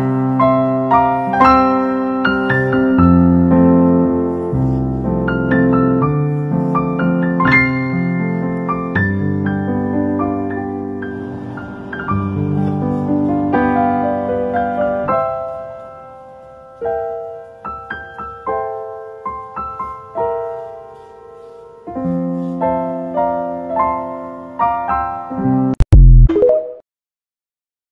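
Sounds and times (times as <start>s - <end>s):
gentle piano melody: 0.0s - 25.8s.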